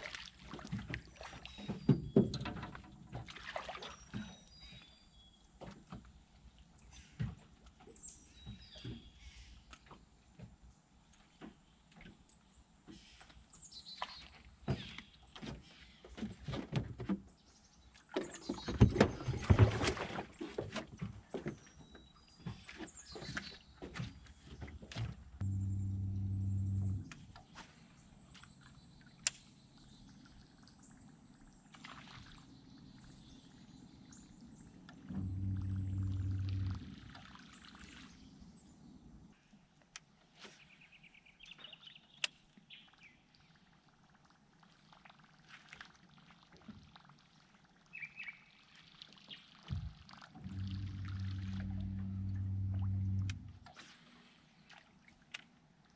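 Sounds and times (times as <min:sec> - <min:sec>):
knocks and clatter in a boat: 0:00.1 - 0:27.6, 0:34.8 - 0:37.0, 0:49.6 - 0:53.8.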